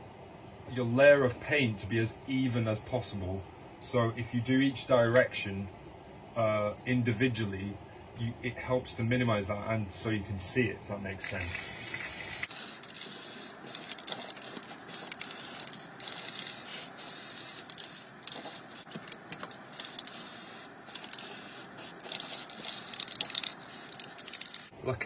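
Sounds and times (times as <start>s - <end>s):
aerosol spray can hissing: 11.3s - 24.7s.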